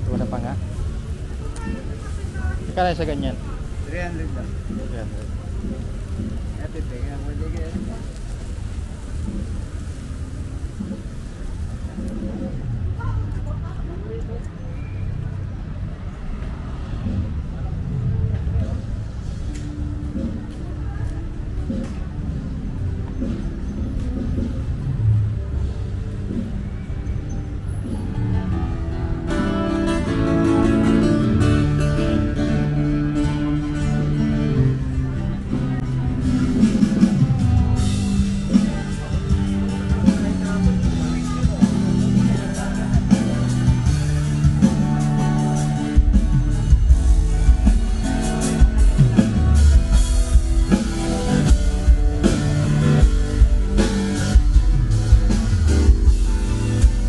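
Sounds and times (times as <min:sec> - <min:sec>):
low street noise rumble: 0:00.0 - 0:57.0
guitar music: 0:27.4 - 0:57.0
loud rock band playing: 0:27.5 - 0:57.0.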